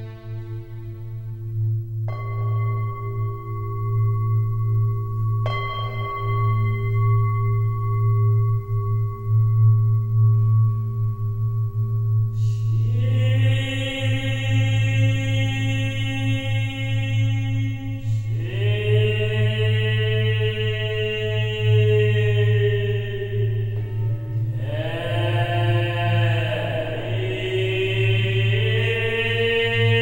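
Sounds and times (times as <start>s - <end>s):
low steady drone: 0.0s - 30.0s
long ringing tones: 1.1s - 30.0s
chanting voices: 12.4s - 30.0s.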